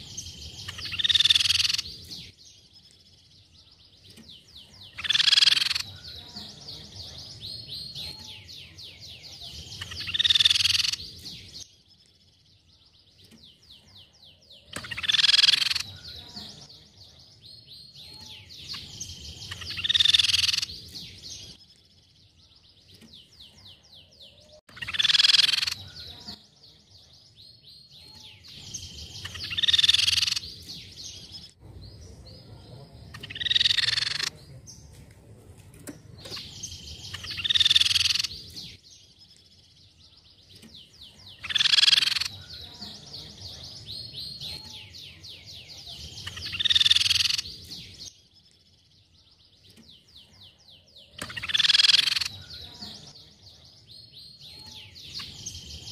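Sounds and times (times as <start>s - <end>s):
bird loud calls: 0.0s - 2.1s, 4.7s - 6.6s, 7.5s - 11.1s, 13.8s - 16.6s, 18.1s - 20.8s, 23.4s - 26.4s, 28.1s - 30.6s, 32.4s - 34.4s, 36.2s - 38.6s, 41.2s - 47.6s, 51.1s - 53.2s.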